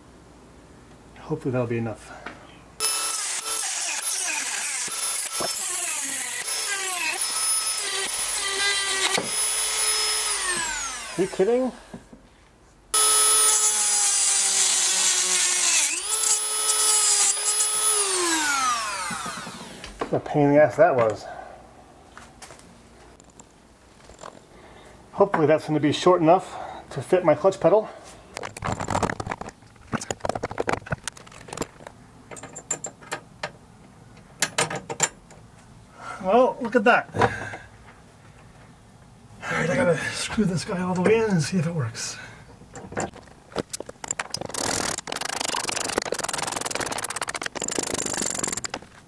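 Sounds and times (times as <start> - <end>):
rotary tool grinding through steel bolt: 2.8 - 11.5, 13.0 - 19.8, 44.0 - 48.9
small metal parts clicking and rattling: 28.4 - 33.2, 42.8 - 48.9.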